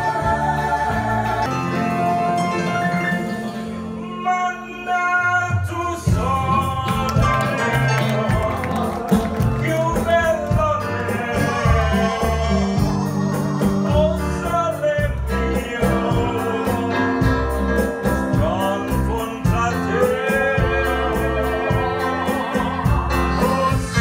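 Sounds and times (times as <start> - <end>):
voices singing into microphones: 0.0 - 3.2, 4.0 - 24.0
bass: 0.0 - 24.0
keyboard: 0.0 - 24.0
steady drum beat: 6.0 - 24.0.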